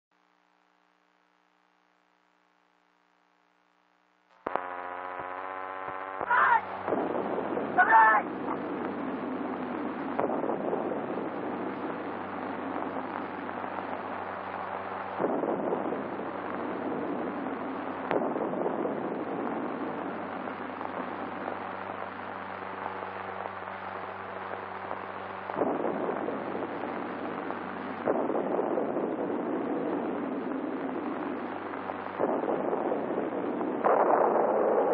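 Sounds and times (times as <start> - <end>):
film soundtrack crackling hiss: 0.1 - 34.9
buzzy hum: 0.2 - 34.9.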